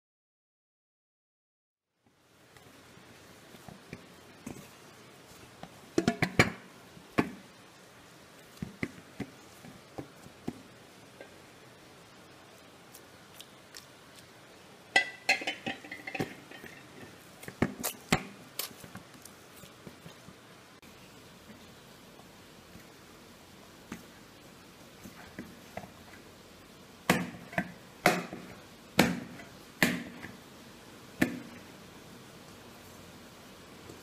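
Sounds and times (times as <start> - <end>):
dough squishing: 2.4 - 26.4
steel bowl knocking and clinking: 14.9 - 17.1.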